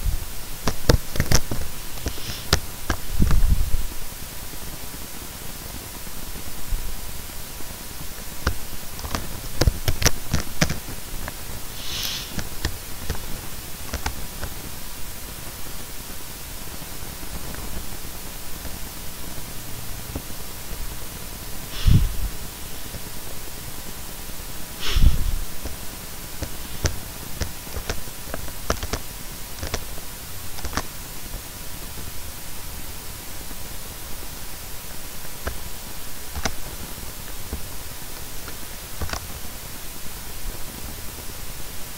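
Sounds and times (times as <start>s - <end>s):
rustle: 0.0s - 41.9s
steady hiss: 0.0s - 41.9s
short breathy sound: 11.8s - 12.4s, 21.7s - 22.4s, 24.8s - 25.4s.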